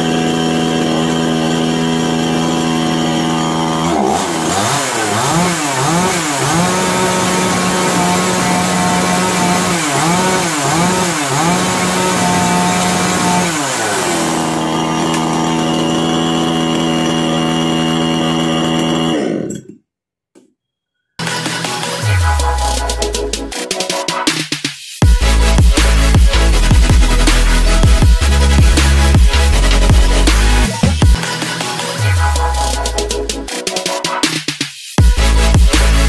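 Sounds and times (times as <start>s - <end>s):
chainsaw idling and revving: 0.0s - 19.7s, 25.0s - 31.2s.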